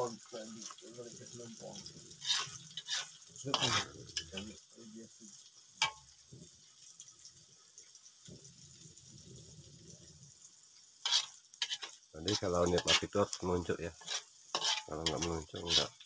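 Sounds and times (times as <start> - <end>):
food sizzling in oil: 0.0 - 16.0
food clattering into pan: 5.8 - 6.1.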